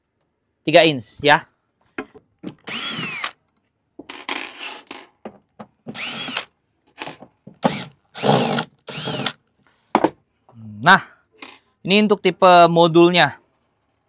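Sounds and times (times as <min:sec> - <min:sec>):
cordless drill motor whine: 0:02.7 - 0:03.4, 0:05.9 - 0:06.5, 0:07.7 - 0:09.4.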